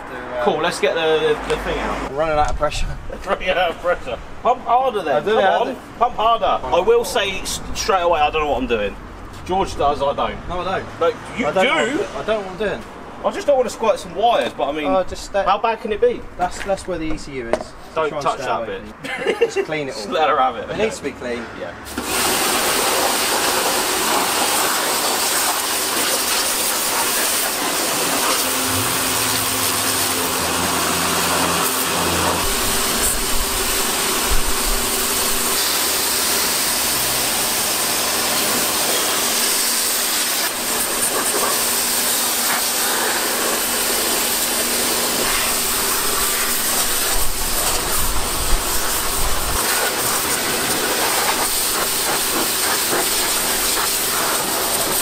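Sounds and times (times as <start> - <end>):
pressure washer spraying water: 21.9 - 55.0
low hum: 27.9 - 34.0.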